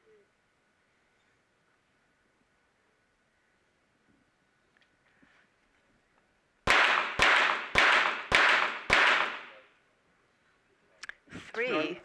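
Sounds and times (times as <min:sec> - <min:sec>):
pistol shots with echo: 0:06.6 - 0:09.6.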